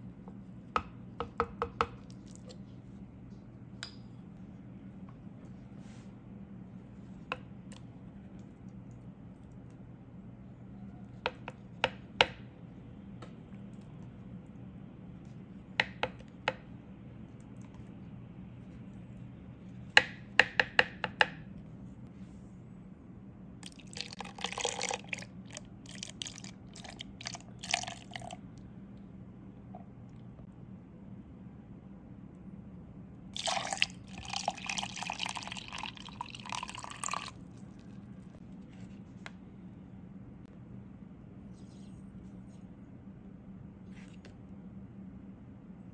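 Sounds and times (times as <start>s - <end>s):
low steady hum: 0.0s - 45.9s
tea pouring into a cup: 23.6s - 28.4s, 33.4s - 37.9s.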